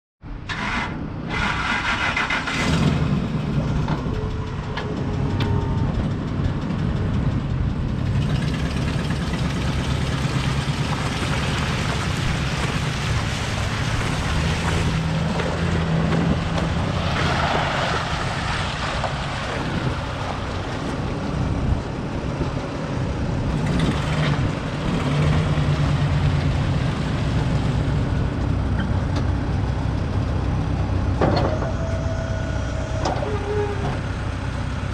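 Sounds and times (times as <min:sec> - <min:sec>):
pickup truck engine idling: 0:03.2 - 0:14.3.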